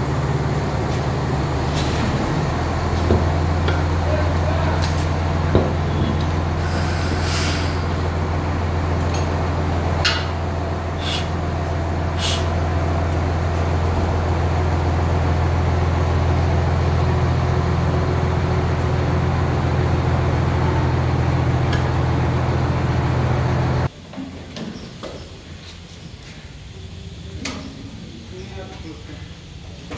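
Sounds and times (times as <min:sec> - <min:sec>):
loud low machine hum: 0:00.0 - 0:23.9.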